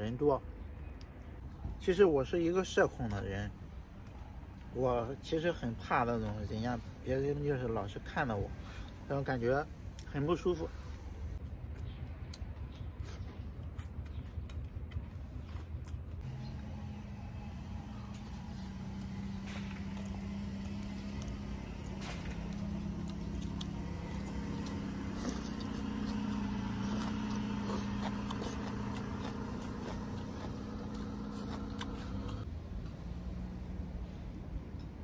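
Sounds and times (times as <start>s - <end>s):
low motor-like hum: 11.0s - 33.9s.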